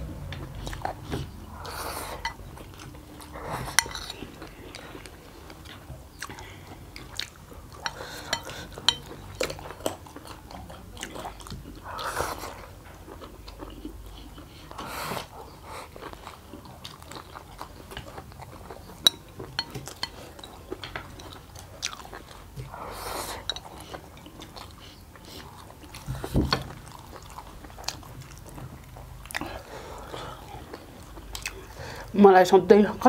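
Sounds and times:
people chewing noodles: 0.0 - 32.2
chopsticks clicking on plates: 7.8 - 9.6, 19.0 - 22.1.

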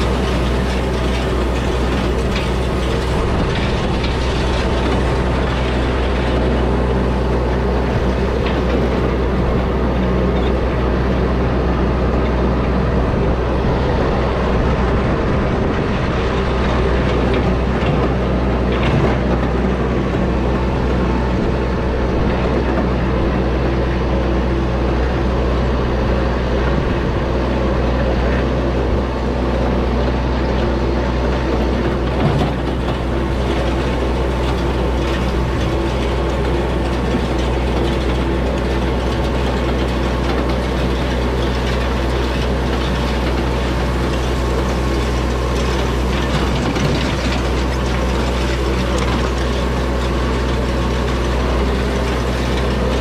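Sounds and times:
hay rake rattling: 0.0 - 14.6, 31.1 - 53.0
tractor diesel engine running: 0.0 - 53.0.

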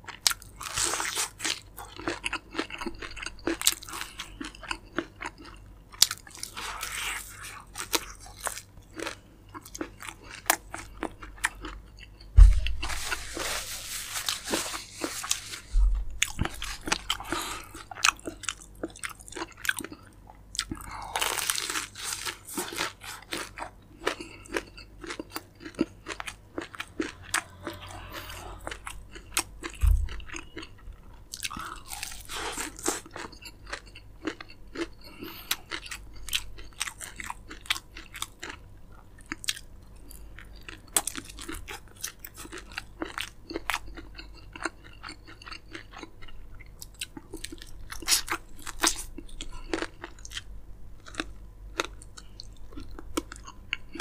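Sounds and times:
crunchy chewing: 0.1 - 54.0
low thump: 12.4 - 12.9, 15.7 - 16.2, 29.8 - 30.1.

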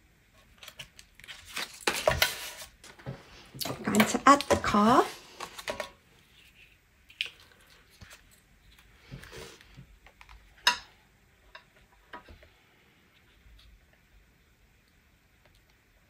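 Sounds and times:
paper rustling: 0.4 - 3.0.

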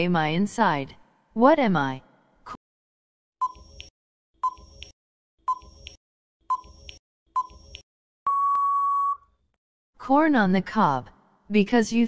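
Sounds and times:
long steady beep: 8.3 - 9.3
short beeps: 8.3 - 9.3.

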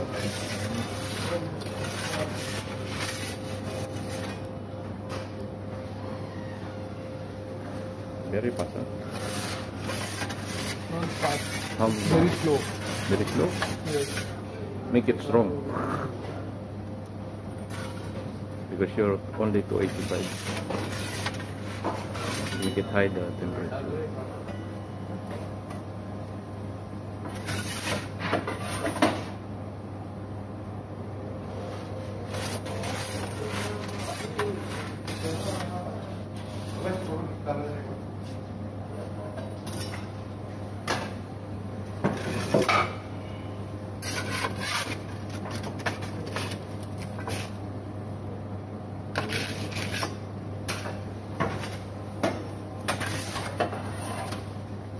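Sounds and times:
low electrical hum: 0.0 - 54.9
metal peel scraping on stone: 44.0 - 45.0.

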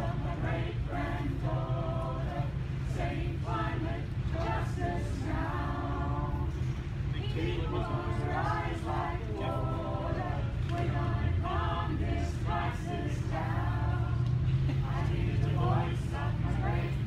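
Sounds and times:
group of marchers singing: 0.0 - 17.0
steady low rumble: 0.0 - 17.0.

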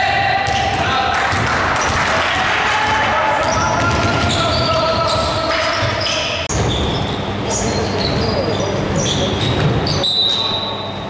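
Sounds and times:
players' voices echoing: 0.0 - 6.6
basketball bouncing on hardwood: 2.8 - 4.9.

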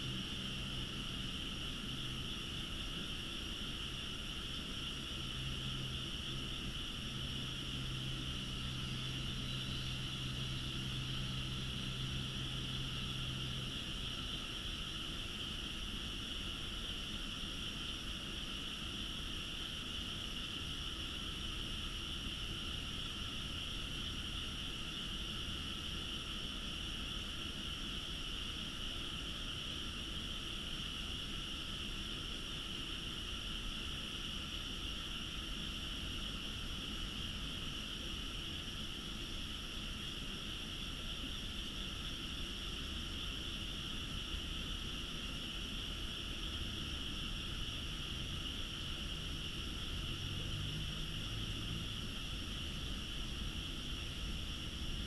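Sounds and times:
frogs calling: 0.0 - 15.6.

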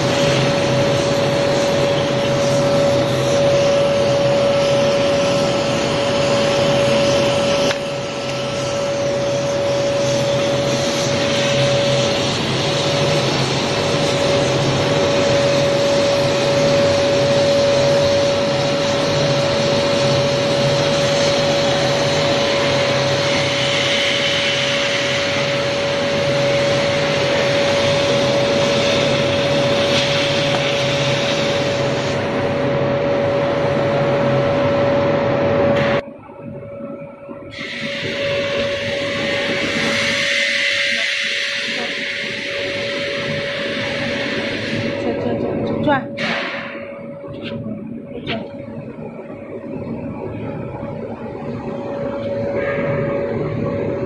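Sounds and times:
cutting torch hissing through steel: 0.0 - 34.4, 37.5 - 47.1
constant machine whine: 0.0 - 54.0.

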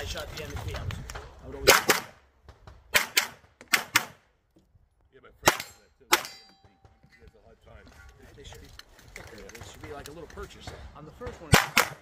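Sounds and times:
pistol shots: 1.6 - 2.2, 2.9 - 4.2, 11.5 - 12.0.

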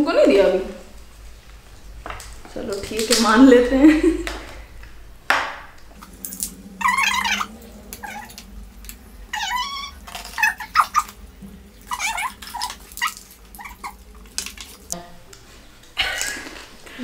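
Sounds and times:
dog whining: 6.0 - 14.9.

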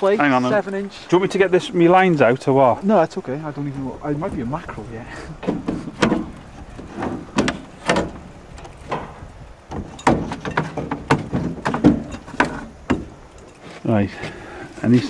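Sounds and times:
low background rumble: 0.0 - 10.2
irregular knocks and clunks: 3.0 - 13.6.

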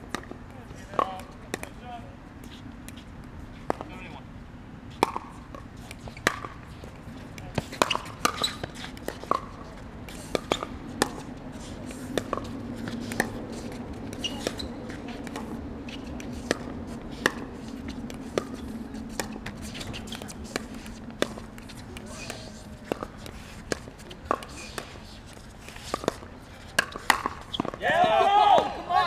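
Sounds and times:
paddles hitting plastic ball: 18.0 - 27.9.

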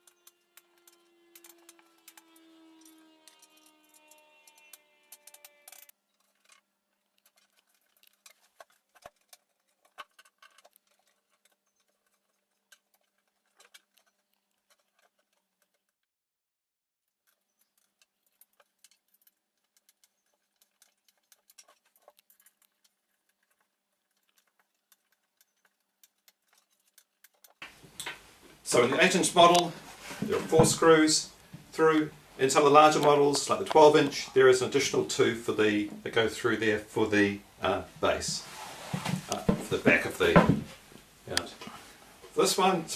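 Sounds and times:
allen key and screws clicking: 0.0 - 6.6.

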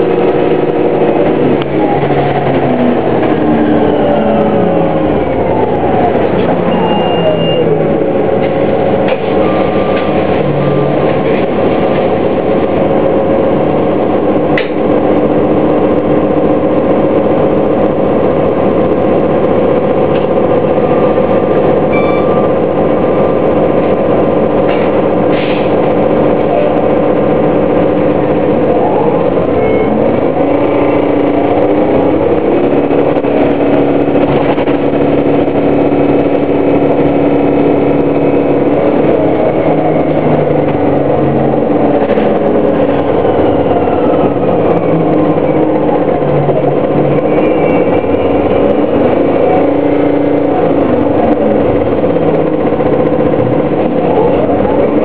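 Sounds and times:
bus drivetrain hum and tones: 0.0 - 55.0.

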